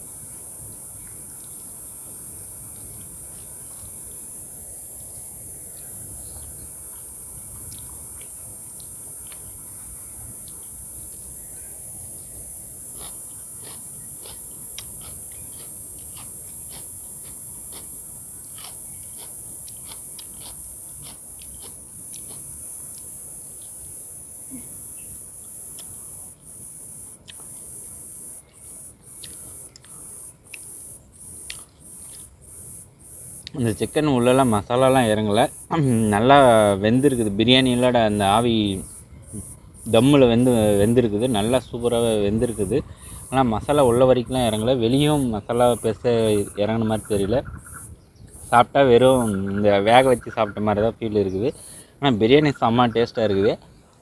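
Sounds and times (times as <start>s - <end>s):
cicadas droning: 0.0s - 54.0s
person eating by hand: 5.7s - 9.7s, 12.4s - 23.8s, 25.6s - 26.1s, 27.2s - 27.8s, 28.4s - 32.3s.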